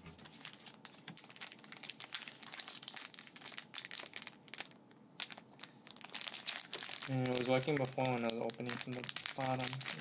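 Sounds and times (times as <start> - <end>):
foil wrapper crinkling: 0.2 - 10.0.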